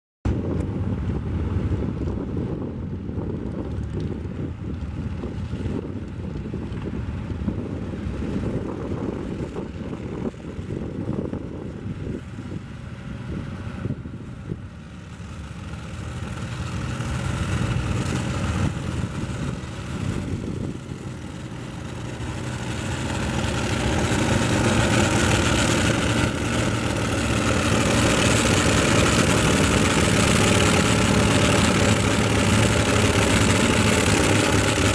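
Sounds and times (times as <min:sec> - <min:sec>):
tractor engine under load: 0:11.8 - 0:34.9.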